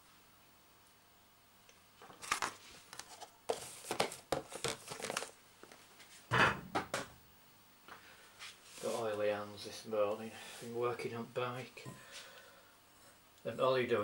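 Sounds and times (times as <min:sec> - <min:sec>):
plastic rustling: 0:02.0 - 0:05.8.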